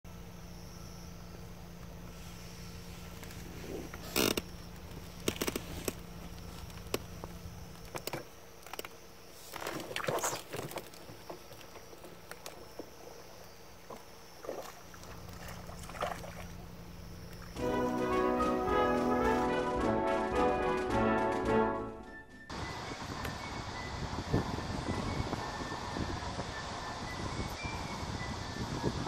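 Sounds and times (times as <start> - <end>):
faint steady hum: 0.1 - 21.8
handling clicks and rustles: 3.0 - 14.2.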